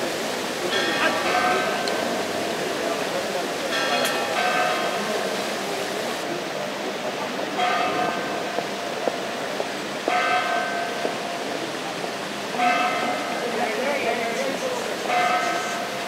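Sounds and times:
church bell tolling: 0:00.7 - 0:02.7, 0:03.7 - 0:05.3, 0:07.6 - 0:08.6, 0:10.0 - 0:11.4, 0:12.5 - 0:13.4, 0:15.1 - 0:16.0.

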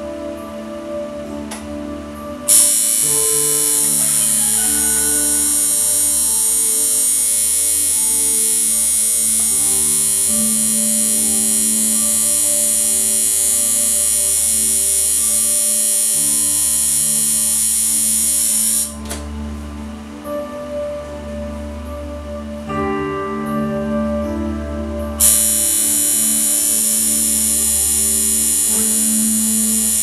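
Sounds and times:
music: 0:00.0 - 0:30.0
tattoo machine buzzing: 0:02.5 - 0:19.2, 0:25.2 - 0:30.0.

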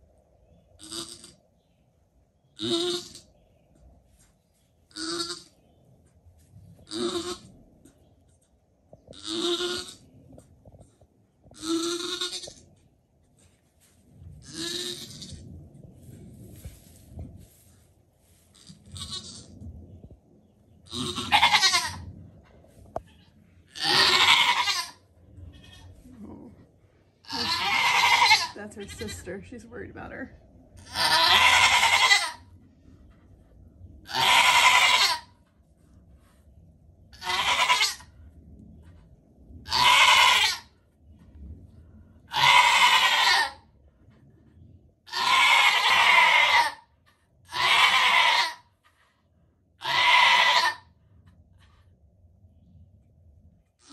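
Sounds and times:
goat bleating: 0:00.8 - 0:01.4, 0:02.6 - 0:03.2, 0:04.9 - 0:05.5, 0:06.9 - 0:07.5, 0:09.2 - 0:10.0, 0:11.6 - 0:12.6, 0:14.4 - 0:15.4, 0:18.6 - 0:19.5, 0:20.9 - 0:22.0, 0:23.0 - 0:25.9, 0:27.2 - 0:29.2, 0:30.8 - 0:32.4, 0:34.1 - 0:35.3, 0:37.2 - 0:38.1, 0:39.7 - 0:40.7, 0:42.3 - 0:43.6, 0:45.1 - 0:46.8, 0:47.5 - 0:48.6, 0:49.8 - 0:50.9.

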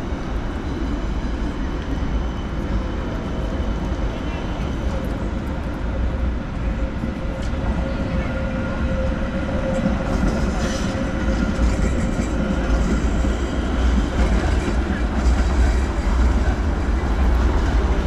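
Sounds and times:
tram whine: 0:00.0 - 0:18.0
wheels hissing on rail: 0:07.4 - 0:18.0.

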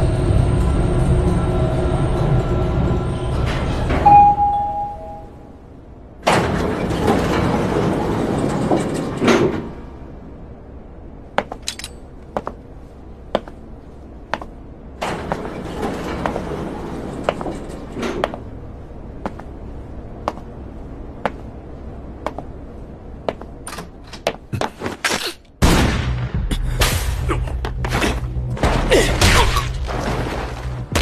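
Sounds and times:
elevator doors sliding open: 0:00.6 - 0:10.6, 0:14.8 - 0:20.2.

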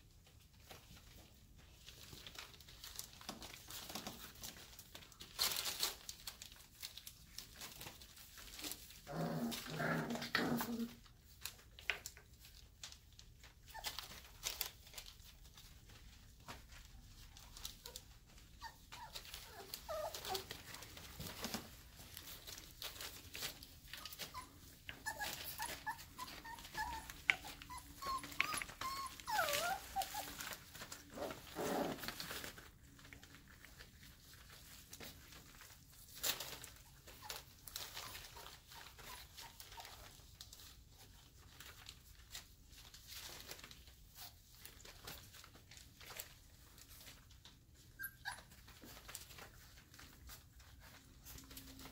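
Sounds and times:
paws scratching on blanket: 0:00.0 - 0:51.9
puppies whimpering and squeaking: 0:12.8 - 0:15.9, 0:16.6 - 0:51.9.

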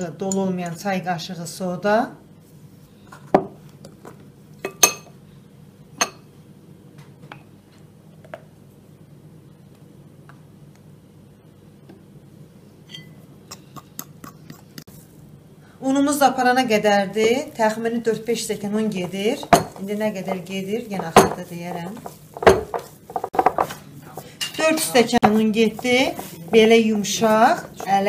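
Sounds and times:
spoon and glass clinking on bowl: 0:04.6 - 0:05.1, 0:12.9 - 0:13.7.

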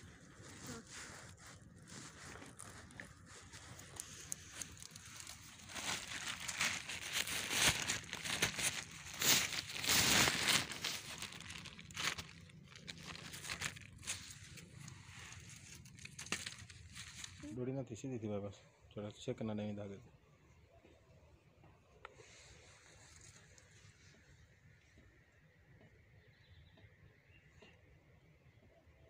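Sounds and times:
plastic bag crinkling: 0:00.2 - 0:17.5.

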